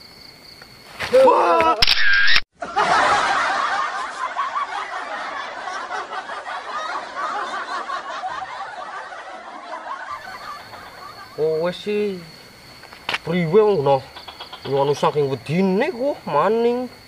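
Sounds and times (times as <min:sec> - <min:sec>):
laugh track: 0:02.6 - 0:11.7.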